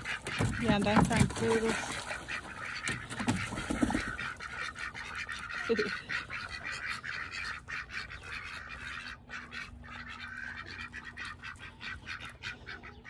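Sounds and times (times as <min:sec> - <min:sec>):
water splashing: 0:00.0 - 0:07.4
ducks quacking: 0:00.0 - 0:13.0.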